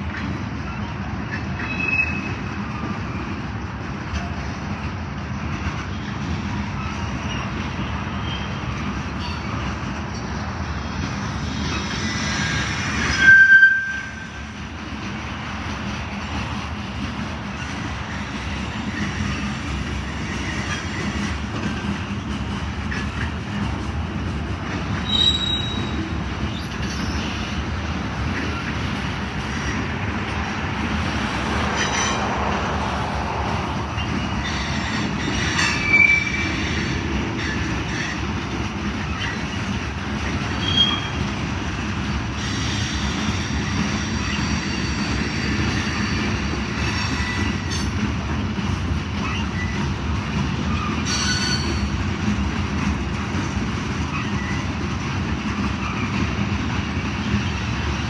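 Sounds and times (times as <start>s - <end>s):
train wheels rumbling on rail: 0.0s - 58.0s
high wheel squeals: 1.6s - 2.5s, 6.8s - 9.6s, 11.6s - 14.5s, 25.0s - 27.6s, 33.9s - 38.2s, 40.6s - 41.2s, 50.7s - 52.0s.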